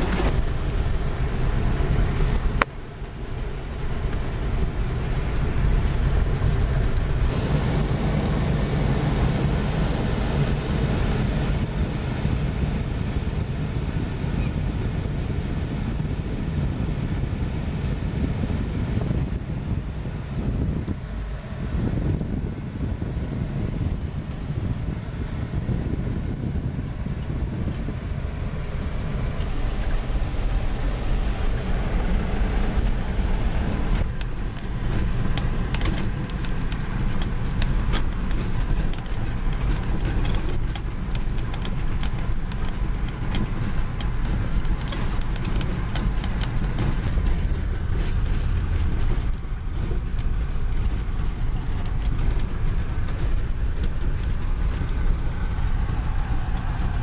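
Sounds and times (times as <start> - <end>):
clicks and rattles: 0.0 - 2.8, 33.9 - 57.0
vehicle rumbling on dirt road: 0.0 - 57.0.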